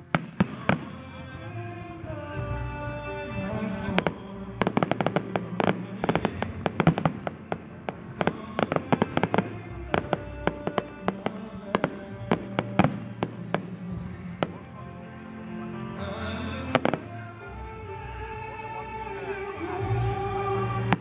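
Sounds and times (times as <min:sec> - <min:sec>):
fireworks cracking and banging: 0:00.0 - 0:01.0, 0:03.9 - 0:14.8, 0:16.7 - 0:17.2
music playing: 0:00.0 - 0:21.0.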